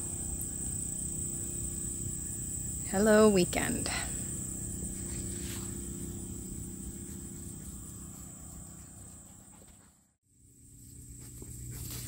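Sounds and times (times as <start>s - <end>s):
crickets trilling: 0.0s - 9.6s
low background hum: 0.0s - 12.0s.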